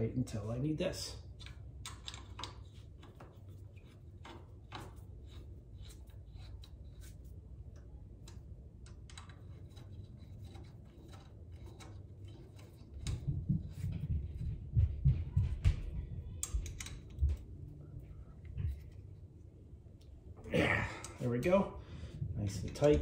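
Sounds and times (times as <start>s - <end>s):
steady low hum: 0.0s - 23.0s
metal clicks of bolts turning: 1.4s - 3.2s, 8.2s - 13.2s, 16.4s - 17.2s
dull low thuds: 13.2s - 16.3s.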